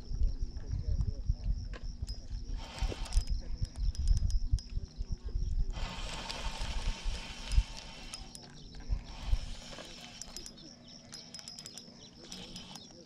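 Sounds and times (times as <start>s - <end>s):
fishing reel whirring: 2.1s - 4.8s, 5.6s - 13.0s.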